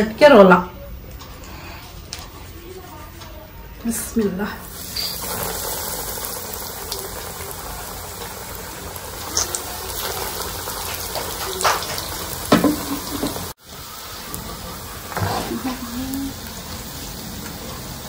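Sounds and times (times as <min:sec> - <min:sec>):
oil bubbling while deep-frying: 0:04.6 - 0:18.0
sharp oil crackles: 0:04.6 - 0:18.0.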